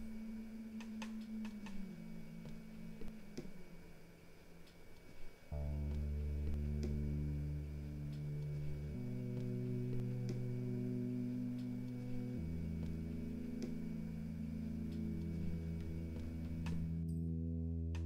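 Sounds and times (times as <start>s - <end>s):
film score low chords: 0.0s - 18.0s
faint clicks: 0.8s - 3.8s.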